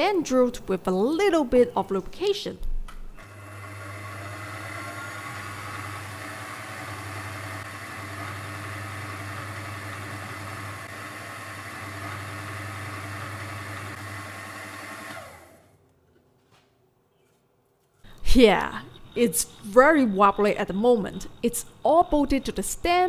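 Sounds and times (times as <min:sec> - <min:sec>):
milling machine running: 0:03.2 - 0:15.6.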